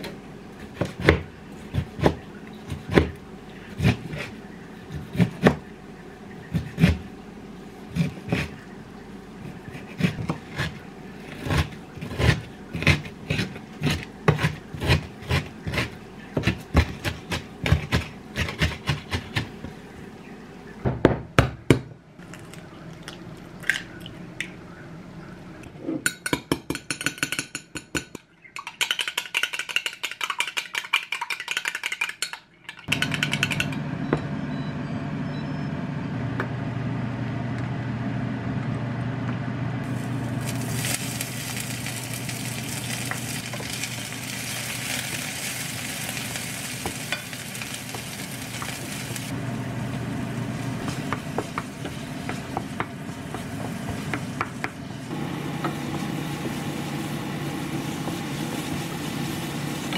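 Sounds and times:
egg cracking: 0:22.2 - 0:24.6, 0:28.1 - 0:33.8, 0:40.3 - 0:49.3
steady low hum: 0:32.9 - 0:59.9.

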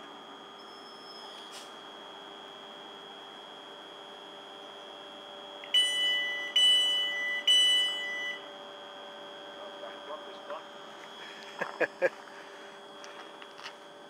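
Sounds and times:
steady high whine: 0:00.0 - 0:14.0
train door warning beeps: 0:05.6 - 0:08.5.

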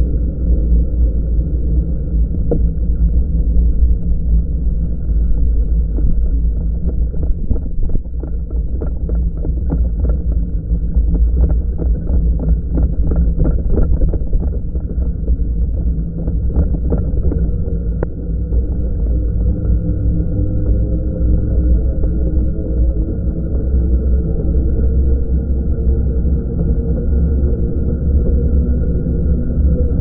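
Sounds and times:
wind rumble on microphone: 0:00.0 - 0:30.0.

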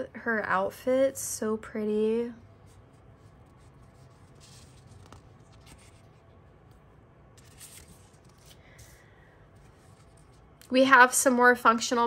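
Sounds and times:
paper sheets rustling: 0:02.6 - 0:10.6.

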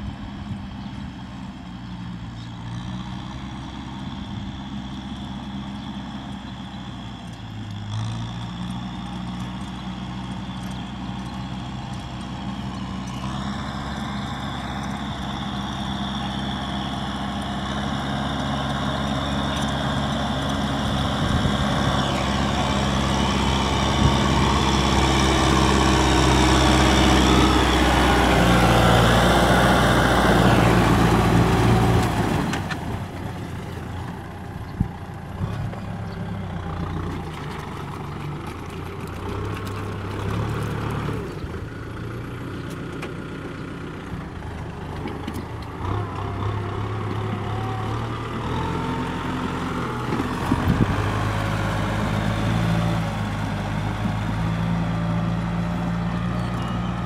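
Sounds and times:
tractor diesel engine running: 0:00.0 - 0:57.0
rotary tiller churning wet soil: 0:07.6 - 0:41.7.

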